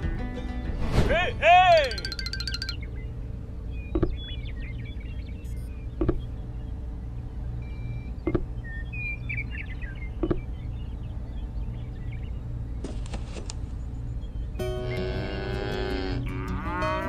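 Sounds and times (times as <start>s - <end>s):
small birds chirping: 1.9s - 16.1s
steady low hum: 2.2s - 14.8s
rustle of handling: 12.8s - 13.7s.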